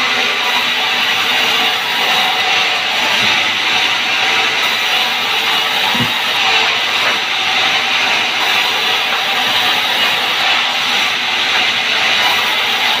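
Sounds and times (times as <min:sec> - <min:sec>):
band saw cutting log: 0:00.0 - 0:13.0.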